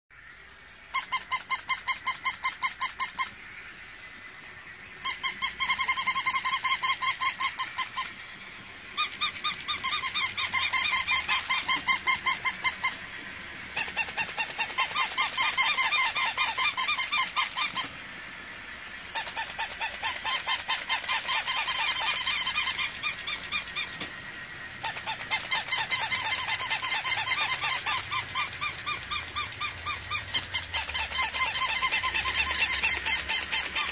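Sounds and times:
toy dogs barking electronic yaps: 0:00.9 - 0:03.4, 0:05.0 - 0:08.2, 0:09.0 - 0:13.0, 0:13.7 - 0:17.9, 0:19.1 - 0:24.1, 0:24.8 - 0:33.9.

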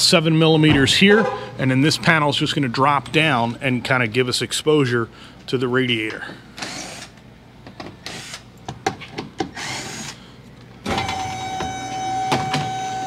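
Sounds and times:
power tool motor whirring: 0:09.6 - 0:10.2.

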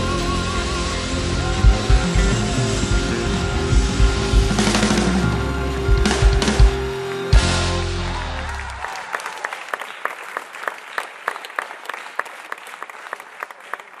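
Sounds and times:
band final chord ringing: 0:00.0 - 0:08.8
audience applause: 0:00.0 - 0:14.0.

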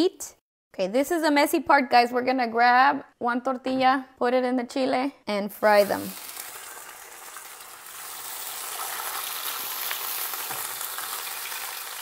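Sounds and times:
tortilla sizzling in hot oil: 0:05.7 - 0:12.0.

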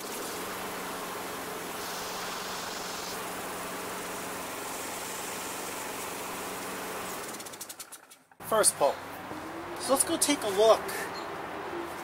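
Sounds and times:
lawn mower engine running: 0:00.0 - 0:10.7
recoil starter pull: 0:07.1 - 0:08.4.

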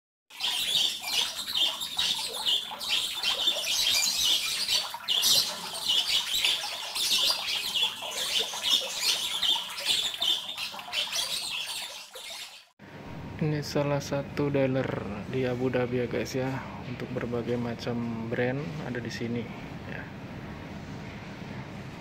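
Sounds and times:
small birds chirping: 0:00.3 - 0:12.7.

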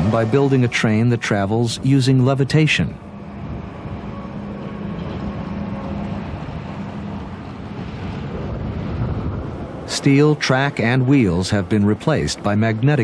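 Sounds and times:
maglev train rushing: 0:00.0 - 0:13.0.

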